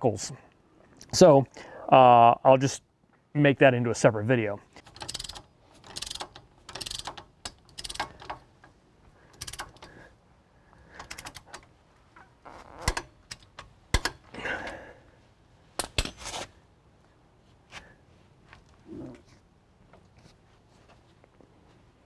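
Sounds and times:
metallic clicks and rattles: 0:04.7 - 0:10.0, 0:10.9 - 0:14.8
sharp metal knocks: 0:12.8 - 0:14.2.

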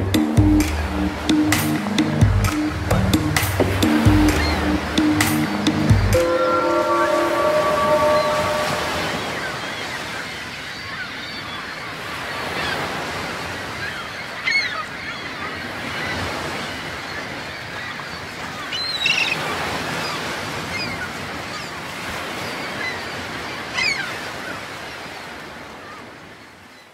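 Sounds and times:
ocean surf washing: 0:00.0 - 0:26.4
bird honking calls: 0:03.8 - 0:10.4.

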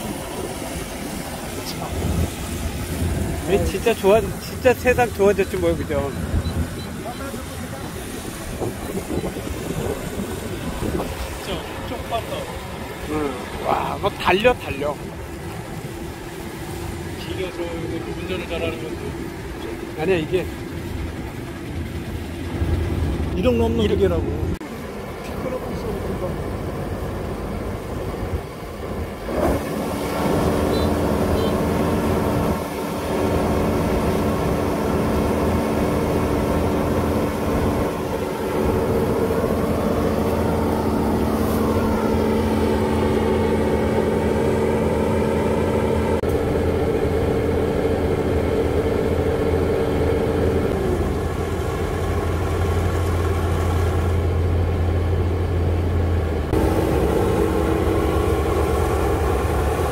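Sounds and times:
combine harvester engine running: 0:00.0 - 0:59.9.

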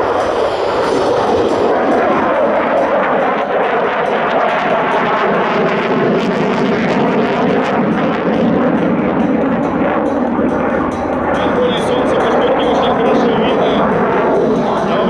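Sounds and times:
fighter jet engines roaring: 0:00.0 - 0:15.0.

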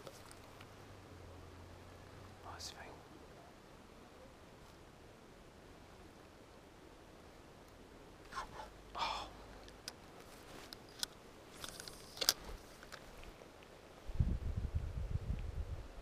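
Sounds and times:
faint clicks and rustles: 0:00.0 - 0:00.8, 0:09.4 - 0:14.0.

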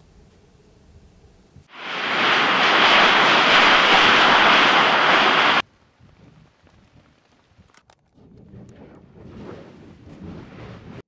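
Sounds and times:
lava fountain roaring: 0:01.7 - 0:05.6.

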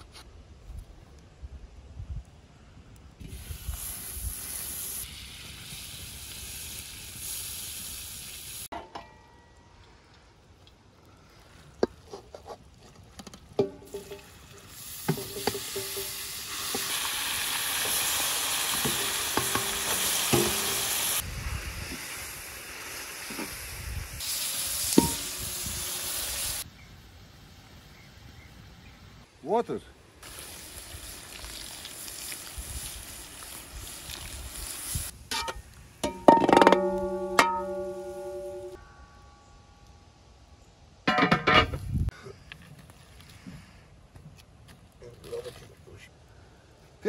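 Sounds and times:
butter sizzling in a metal pan: 0:03.2 - 0:08.7, 0:13.6 - 0:26.6, 0:30.2 - 0:38.8
minced meat frying: 0:03.2 - 0:08.7, 0:13.1 - 0:26.7, 0:30.2 - 0:38.7.

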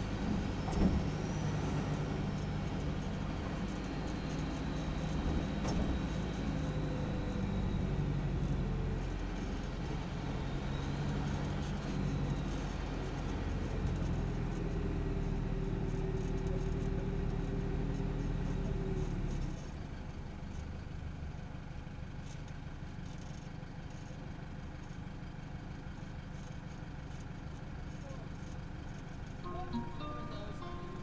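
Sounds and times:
diesel truck engine droning: 0:00.0 - 0:20.3, 0:28.4 - 0:31.0.

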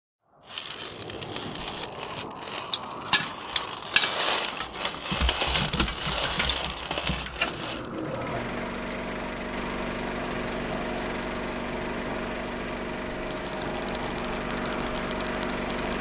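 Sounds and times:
film projector clicking and rattling: 0:00.5 - 0:10.0, 0:12.8 - 0:16.0
projector motor humming: 0:07.2 - 0:16.0.

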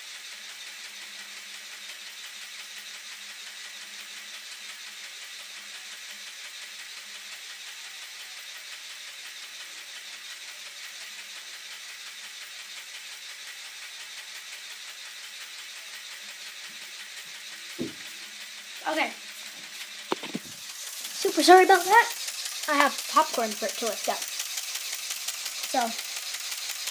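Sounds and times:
steady hiss: 0:16.4 - 0:26.9.

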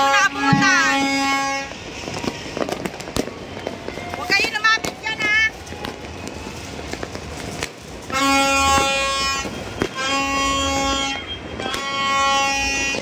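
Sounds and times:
horn blasts: 0:00.0 - 0:02.7, 0:08.1 - 0:13.0
distant firecrackers cracking: 0:00.0 - 0:13.0.

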